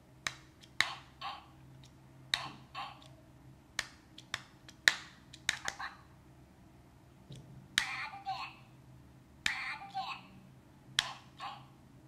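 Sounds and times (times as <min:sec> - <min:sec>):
fingers tapping toy: 0:00.2 - 0:03.2, 0:03.8 - 0:05.9, 0:07.8 - 0:08.0, 0:09.4 - 0:09.7, 0:11.0 - 0:11.4
toy speaker gibberish voice: 0:00.8 - 0:01.6, 0:02.4 - 0:03.1, 0:05.6 - 0:06.1, 0:07.8 - 0:08.7, 0:09.4 - 0:10.4, 0:11.0 - 0:11.8.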